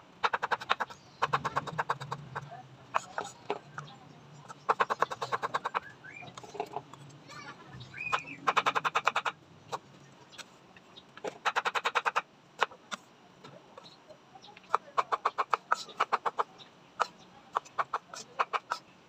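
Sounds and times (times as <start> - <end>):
animal rapid pulsing call: 0.2 - 3.4, 4.7 - 6.2, 8.0 - 9.4.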